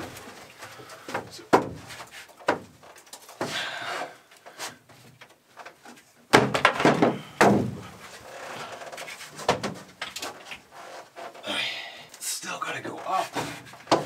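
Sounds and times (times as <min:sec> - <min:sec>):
plywood panel knocking and thumping: 0:01.1 - 0:02.8, 0:06.3 - 0:08.0, 0:09.4 - 0:10.2, 0:13.3 - 0:14.0
scraping rustle: 0:01.8 - 0:06.1, 0:07.9 - 0:11.4.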